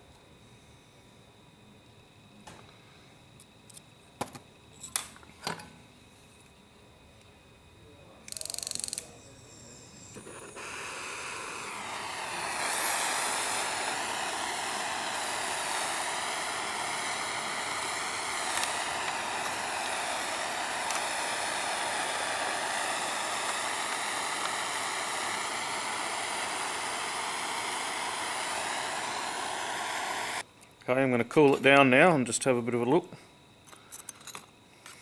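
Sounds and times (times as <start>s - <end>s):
gas torch flame hissing: 8.3s - 30.5s.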